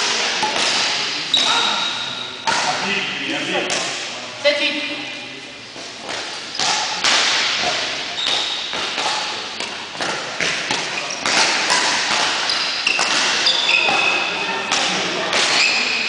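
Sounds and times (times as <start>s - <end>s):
racket hitting shuttlecock: 0.0s - 1.2s, 2.4s - 2.8s, 6.0s - 16.0s
shoe squeaks: 1.3s - 2.4s, 8.1s - 8.8s, 12.4s - 14.5s, 15.5s - 16.0s.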